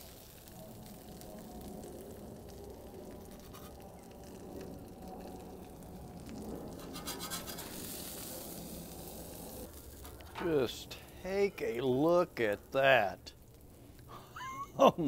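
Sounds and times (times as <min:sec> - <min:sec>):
faint sizzle: 0:00.0 - 0:15.0
metal spatula scraping griddle: 0:03.3 - 0:03.8, 0:06.8 - 0:10.4.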